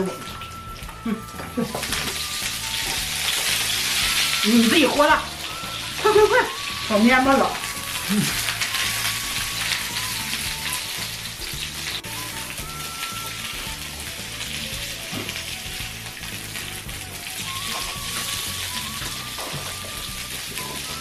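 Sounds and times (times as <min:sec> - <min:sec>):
background music with bass line: 0:00.0 - 0:21.0
meat sizzling on grill plate: 0:00.0 - 0:21.0.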